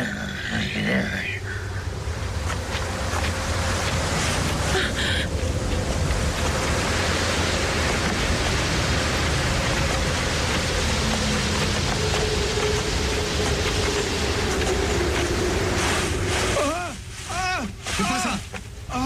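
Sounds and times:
steady rushing noise: 0.0 - 19.0.

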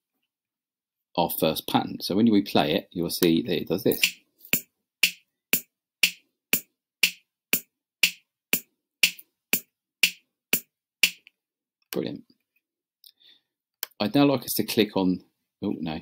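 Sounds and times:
drum machine backbeat: 3.9 - 11.2.

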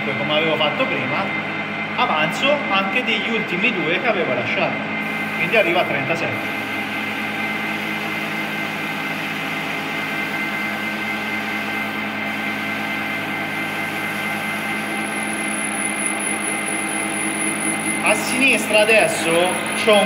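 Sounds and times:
lathe humming with high whine: 0.0 - 20.0.

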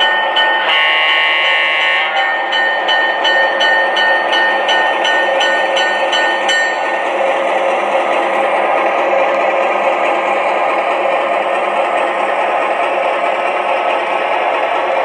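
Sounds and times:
locomotive bell ringing: 0.0 - 8.0
model train rolling on track: 0.0 - 15.0.

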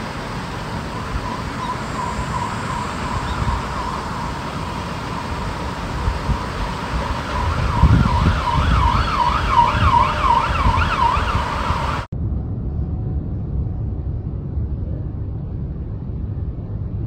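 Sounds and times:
siren in fast yelp: 0.0 - 12.1
low rumble: 0.0 - 17.0.

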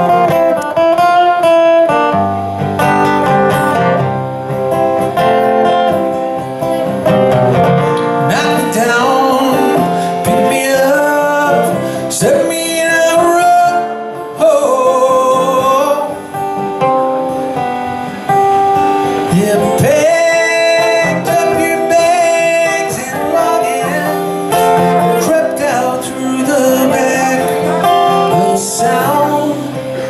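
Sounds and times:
acoustic guitar: 0.0 - 30.0
man singing: 8.2 - 16.4, 19.2 - 30.0.

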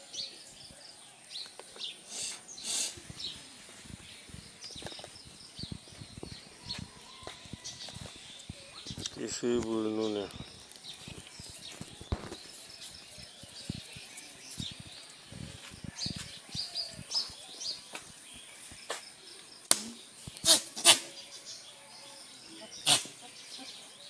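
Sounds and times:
small birds chirping: 0.0 - 24.0
hooves scuffing on pavement: 3.0 - 19.4
loud sharp noises: 19.7 - 21.2.

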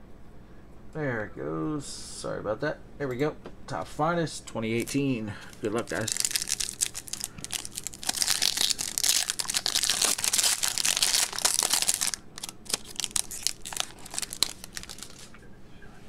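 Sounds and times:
foil wrapper tearing and crinkling: 5.5 - 15.3.

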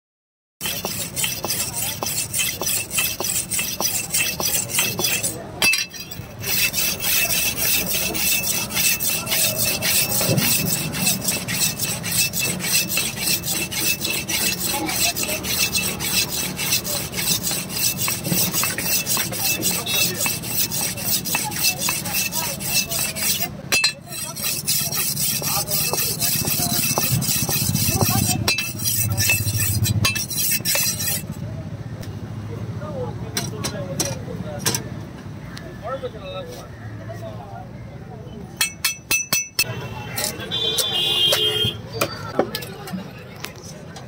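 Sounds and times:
knife rasping on sharpening stone: 0.6 - 31.4, 38.6 - 41.6.

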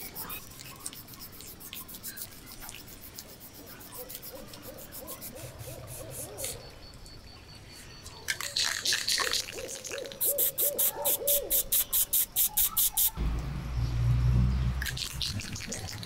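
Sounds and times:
spray can rattling: 8.4 - 13.2.

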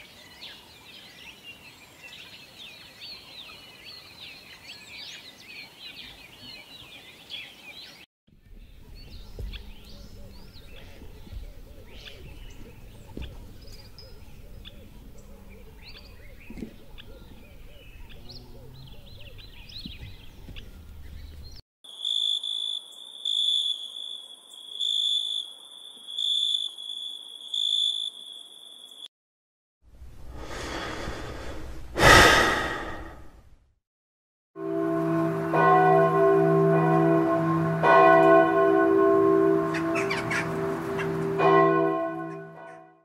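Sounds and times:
birds chirping: 0.0 - 25.4, 30.4 - 33.3, 36.2 - 42.7
low outdoor background: 8.3 - 22.0, 29.9 - 33.8
high pulsing insect trill: 21.9 - 29.1
person drawing a long breath: 30.3 - 33.4.

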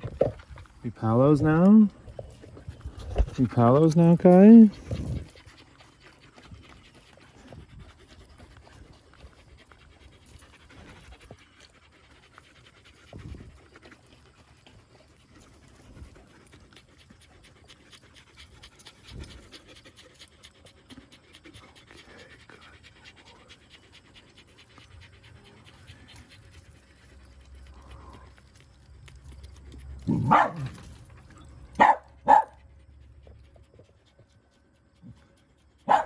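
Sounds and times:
dog panting: 0.0 - 36.0.

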